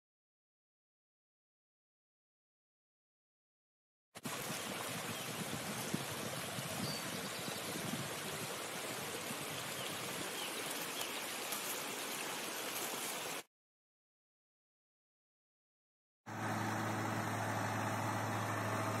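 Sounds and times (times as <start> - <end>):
stream babbling over rocks: 4.2 - 13.5.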